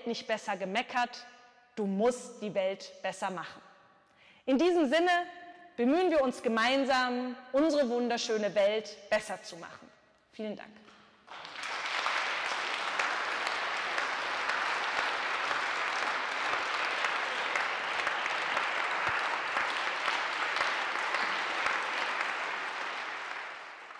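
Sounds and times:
audience applauding: 11.3 - 23.9.

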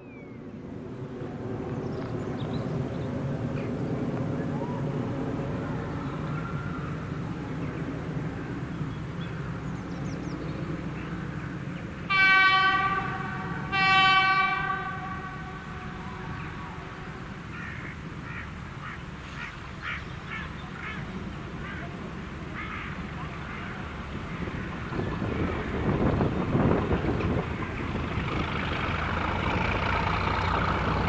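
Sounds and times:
locomotive horn blasts: 12.1 - 17.4.

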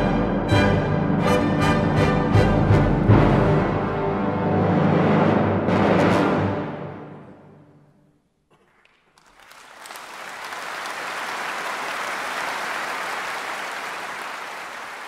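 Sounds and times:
audience applause: 8.6 - 15.0.

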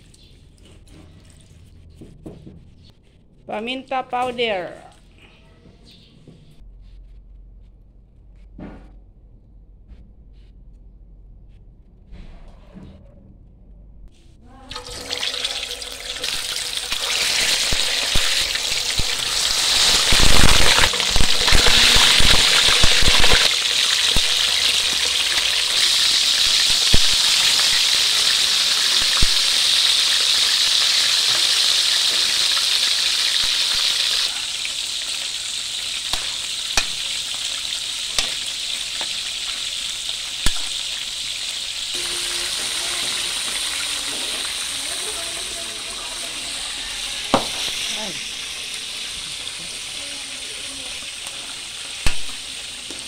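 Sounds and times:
fish sizzling in hot oil: 14.8 - 53.0
oil spattering and popping: 15.6 - 27.9.

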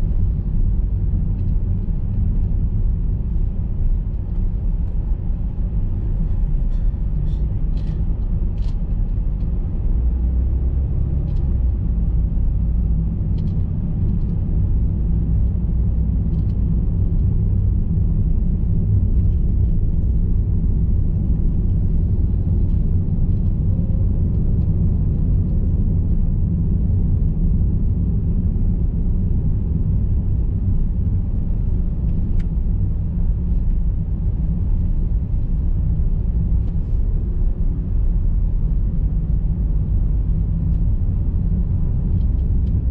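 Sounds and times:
car driving: 0.0 - 42.9.

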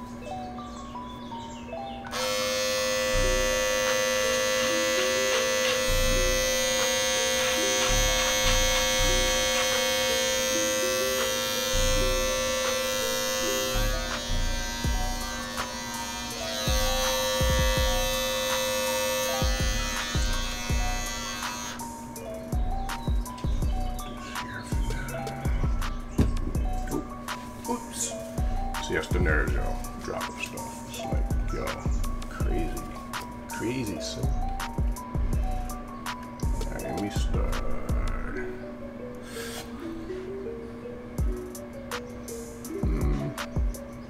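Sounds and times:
electric hair clippers buzzing: 2.1 - 27.3, 39.2 - 39.8.

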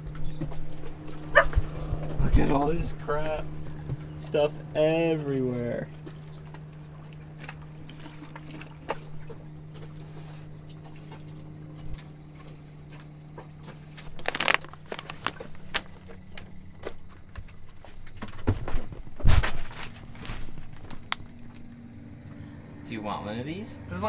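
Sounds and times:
low hum: 0.0 - 24.0
packaging rustling and crinkling: 14.0 - 17.3.

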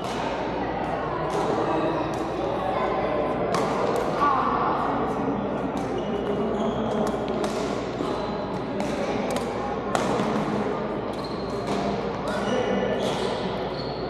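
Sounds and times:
shoe squeaks: 5.9 - 7.3, 11.1 - 14.0
rackets hitting shuttlecocks: 7.0 - 7.9, 8.8 - 10.6, 11.6 - 12.4.

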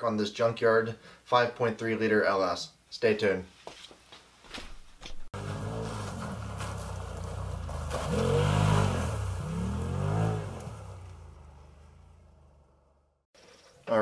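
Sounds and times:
off-road vehicle engine revving: 5.3 - 13.2.

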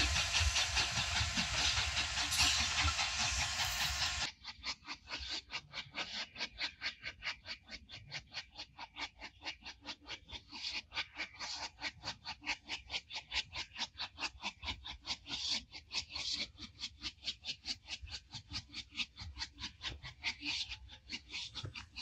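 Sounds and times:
steam hissing: 0.0 - 4.3
steam locomotive chuffing: 0.0 - 4.3.

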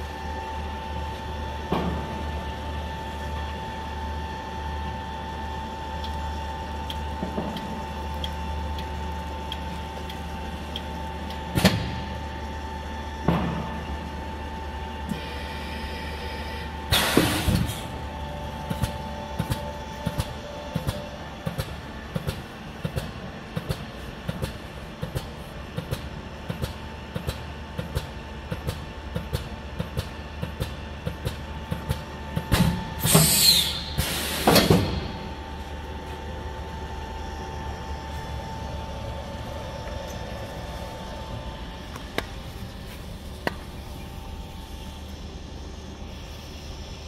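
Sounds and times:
loud air blasts: 16.9 - 17.8, 33.0 - 35.1
air hissing: 33.0 - 34.8
vacuum pump humming: 33.8 - 47.0.

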